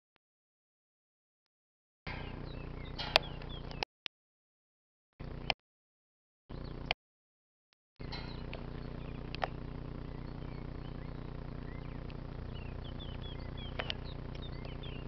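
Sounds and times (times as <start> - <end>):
steady low hum: 2.1 - 3.8, 5.2 - 5.6, 6.5 - 7.0, 8.0 - 15.0
birds chirping: 2.1 - 3.9, 6.5 - 7.0, 8.0 - 15.0
sharp clicks: 2.1 - 3.9, 8.0 - 9.6, 11.9 - 15.0.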